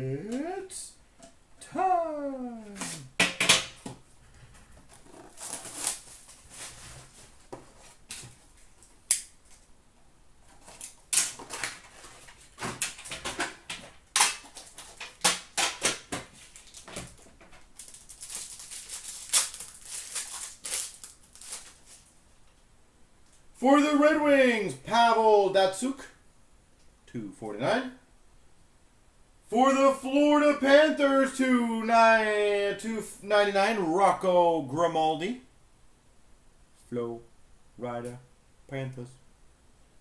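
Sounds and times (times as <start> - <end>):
foil wrappers crinkling and tearing: 5.2 - 7.1, 14.2 - 22.2.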